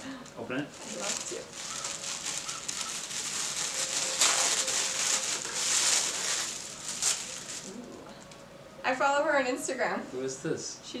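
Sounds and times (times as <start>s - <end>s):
tissue paper rustling: 0.7s - 7.9s.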